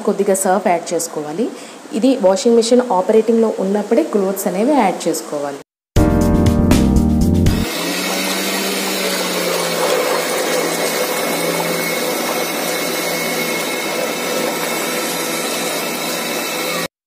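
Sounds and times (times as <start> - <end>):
electric motor humming: 7.6 - 16.9
water churning in bucket: 7.7 - 16.7.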